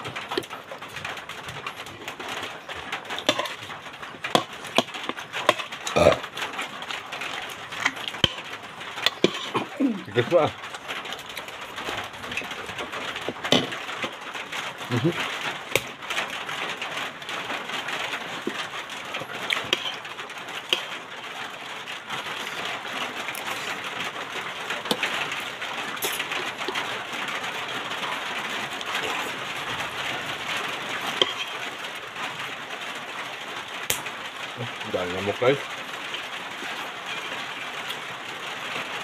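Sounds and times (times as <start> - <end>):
steady hissing noise: 0.0 - 39.0
cutlery and dishes clicking: 3.2 - 3.6, 7.8 - 9.7, 31.2 - 31.6.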